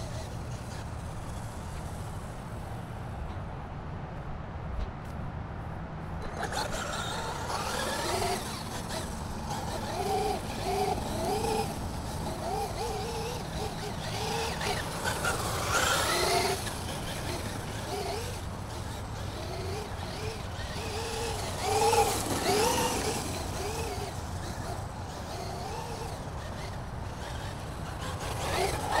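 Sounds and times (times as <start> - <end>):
motor and tyre rush: 0.0 - 29.0
electric motor whining: 6.2 - 29.0.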